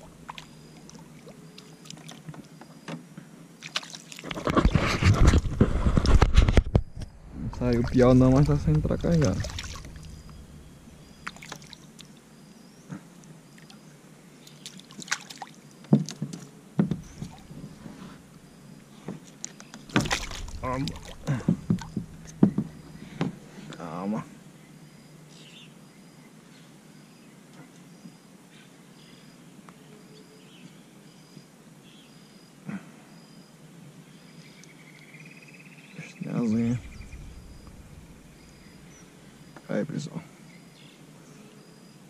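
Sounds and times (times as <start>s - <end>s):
water splashing against kayak: 3.6s - 6.6s, 7.5s - 12.1s, 16.9s - 18.3s, 19.2s - 23.2s.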